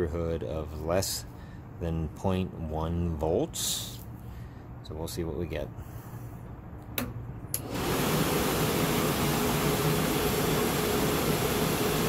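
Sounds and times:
blower motor running: 7.6s - 12.0s.

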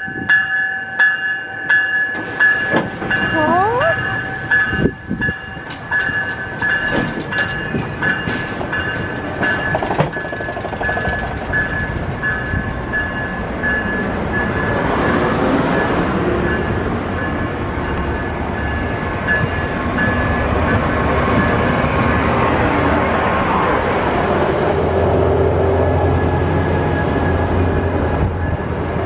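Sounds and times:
train rumble: 0.0s - 29.0s
train wheels clicking over rail joints: 2.0s - 3.4s, 4.5s - 14.8s
repeating high ringing tone: 3.2s - 6.8s.

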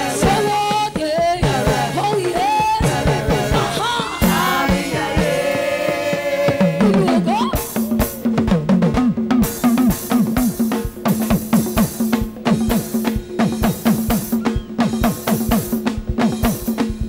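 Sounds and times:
voices singing gospel music: 0.0s - 8.2s
drums and cymbals: 0.0s - 17.0s.

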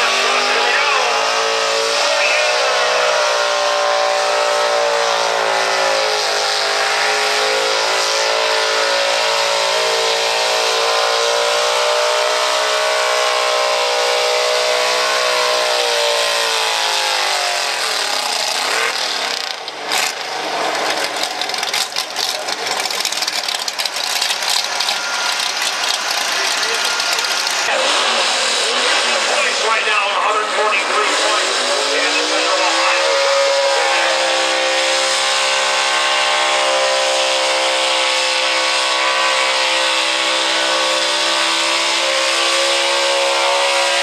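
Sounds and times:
pickup truck engine revving: 0.0s - 44.0s.

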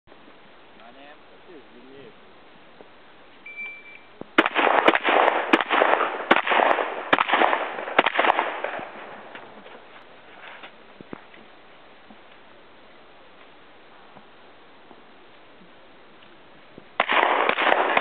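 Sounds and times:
shot timer beep: 3.4s - 4.1s
shotgun shots with echo: 4.4s - 9.2s, 17.0s - 18.0s.

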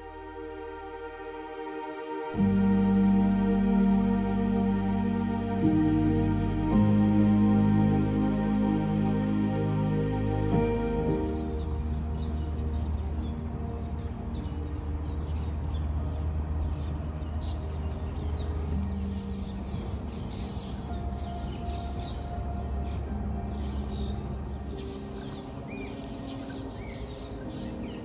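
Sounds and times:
soft music of held chords: 0.0s - 28.0s
birds chirping: 5.6s - 28.0s.

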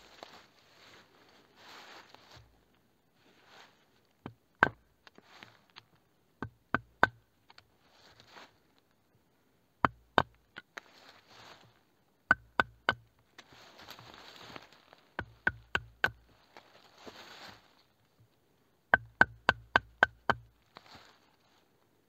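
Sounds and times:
soft scraping: 0.0s - 2.6s, 3.2s - 4.0s, 7.8s - 8.6s, 10.8s - 11.8s, 16.3s - 17.9s
knife chopping wood: 4.2s - 4.8s, 6.4s - 7.2s, 9.8s - 10.6s, 12.3s - 13.0s, 15.2s - 16.3s, 18.9s - 20.6s.

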